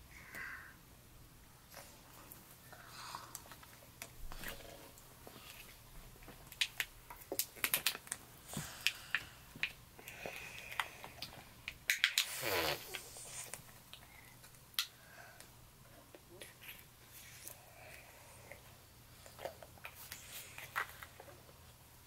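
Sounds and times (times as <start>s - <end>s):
lip smacks and clicks: 6.5s - 8.2s, 8.8s - 15.0s.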